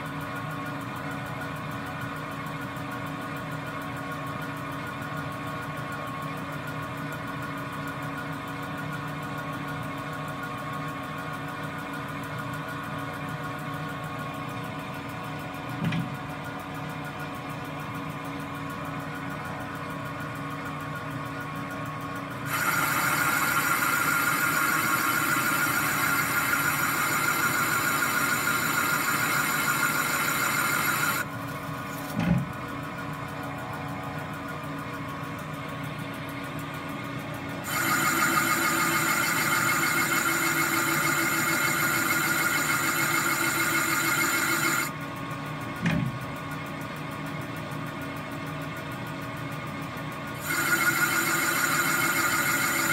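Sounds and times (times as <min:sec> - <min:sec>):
steady machine hum: 0:14.0 - 0:45.9, 0:49.4 - 0:52.9
metal lathe cutting: 0:22.5 - 0:31.3, 0:37.6 - 0:44.9, 0:50.4 - 0:52.9.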